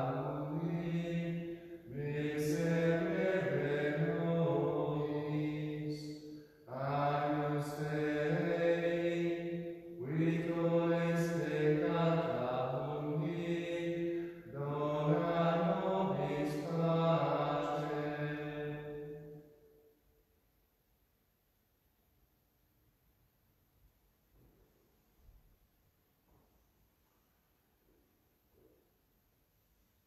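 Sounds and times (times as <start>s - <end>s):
man singing a chant: 0.0s - 19.2s.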